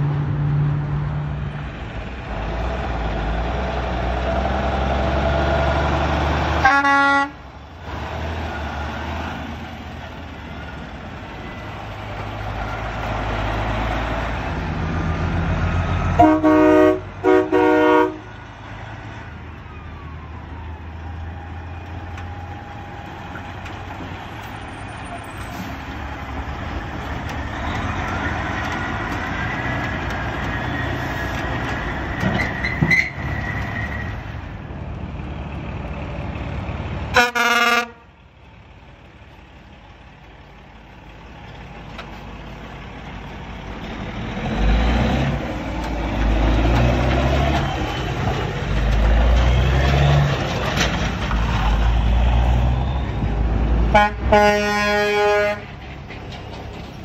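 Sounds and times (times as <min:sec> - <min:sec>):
diesel trucks passing: 0:00.0 - 0:57.0
truck horn blasts: 0:06.6 - 0:07.4, 0:16.1 - 0:18.3, 0:37.1 - 0:38.1, 0:53.8 - 0:55.8.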